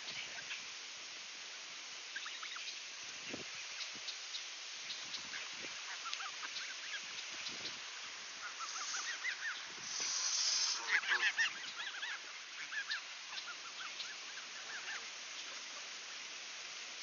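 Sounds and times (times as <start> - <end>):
geese honking: 8.3 - 15.9
goose hissing: 8.4 - 12.2.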